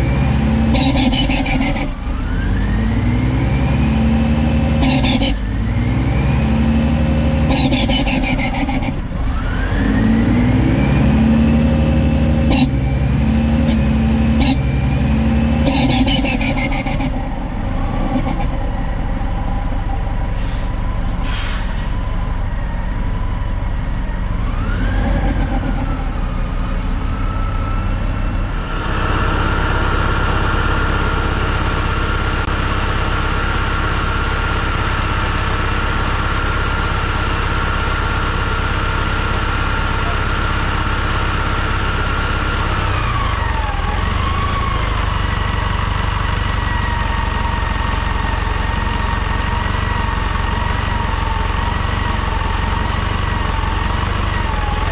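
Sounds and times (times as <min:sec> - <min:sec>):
bus engine idling: 0:11.4 - 0:24.5, 0:25.2 - 0:54.9
short hisses: 0:20.4 - 0:22.2
high whine: 0:28.4 - 0:33.9.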